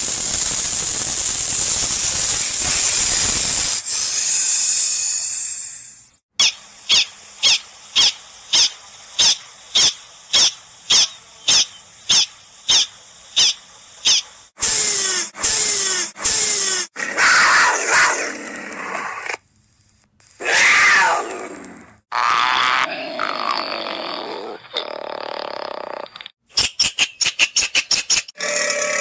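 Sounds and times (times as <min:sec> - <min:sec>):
raspy hiss-like animal calls: 0:02.3 - 0:18.2
prairie dog alarm barks: 0:06.4 - 0:14.2.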